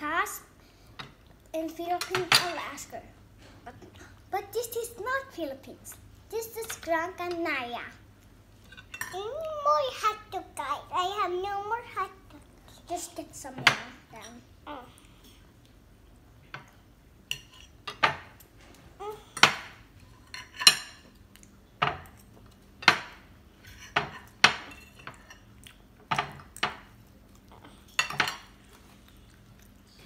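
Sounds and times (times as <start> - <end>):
cutlery clinking on ceramic plates: 28.0 - 28.5.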